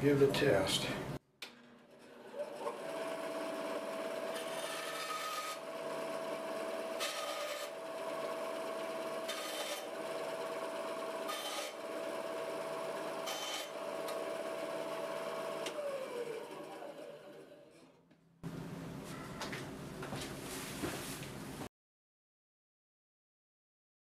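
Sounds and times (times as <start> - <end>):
saw blade cutting wood: 1.4 - 8.4, 9.0 - 10.0, 11.2 - 12.0, 13.2 - 14.2
band saw motor hum: 1.5 - 17.9.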